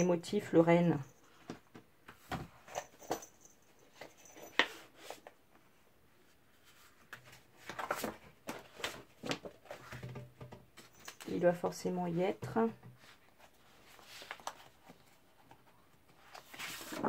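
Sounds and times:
paper sheets rustling: 13.6s - 15.0s, 16.2s - 17.0s.

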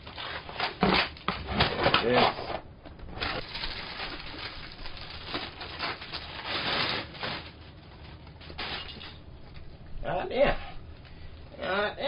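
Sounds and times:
plastic packaging crinkling: 3.1s - 9.2s.

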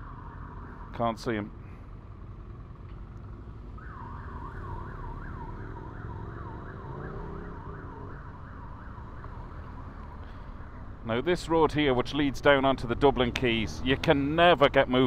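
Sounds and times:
police siren yelping: 0.0s - 1.0s, 3.7s - 10.9s
road noise: 0.0s - 15.0s
motorcycle engine: 1.9s - 10.4s.

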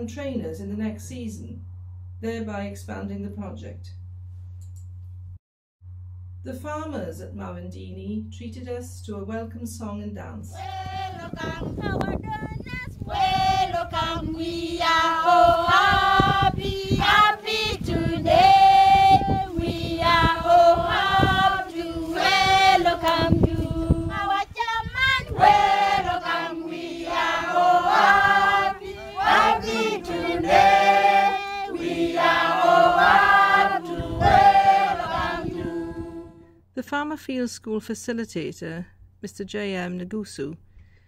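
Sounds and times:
group of women singing unaccompanied: 10.5s - 36.4s.

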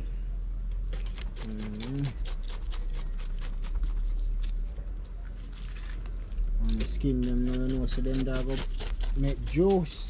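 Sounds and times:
knife slicing pineapple rind: 0.8s - 4.8s, 6.6s - 10.0s.

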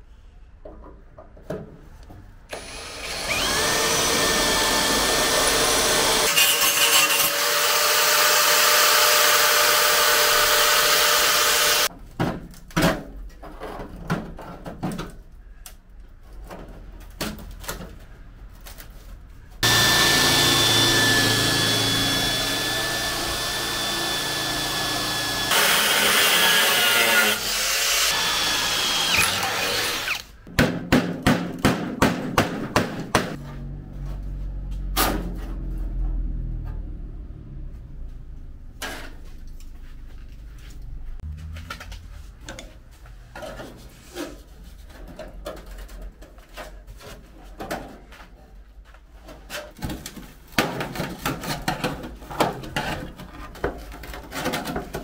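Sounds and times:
power tool whining: 2.5s - 11.9s, 19.6s - 30.4s.

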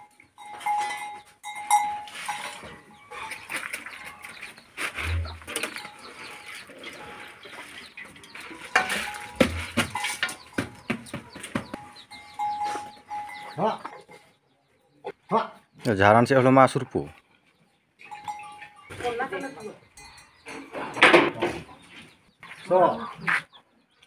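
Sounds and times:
metal pots clinking and scraping: 0.0s - 14.1s, 18.0s - 21.8s
sharp knocks: 8.8s - 11.9s.

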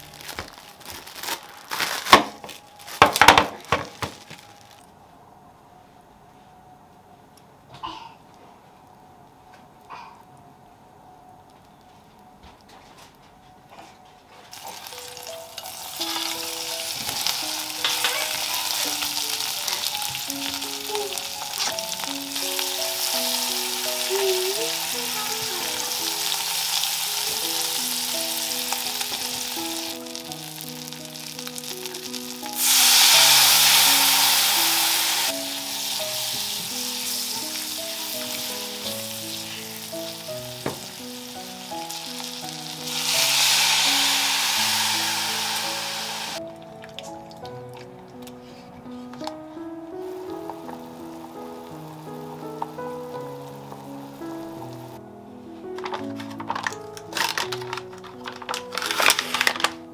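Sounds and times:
soft background music: 0.0s - 59.9s
food sizzling in a pan: 14.5s - 46.4s, 50.0s - 55.0s.

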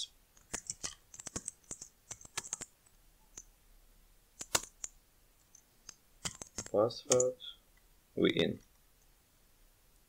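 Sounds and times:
computer keyboard keystrokes: 0.4s - 2.7s, 4.4s - 5.0s, 5.9s - 7.4s.

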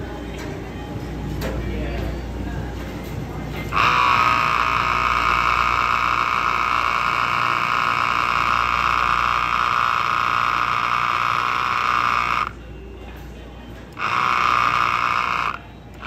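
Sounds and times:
espresso machine whirring: 3.2s - 16.0s.

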